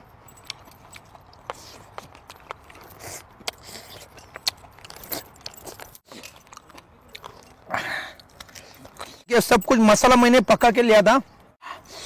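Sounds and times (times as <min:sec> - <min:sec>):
person chewing food: 0:00.0 - 0:09.3.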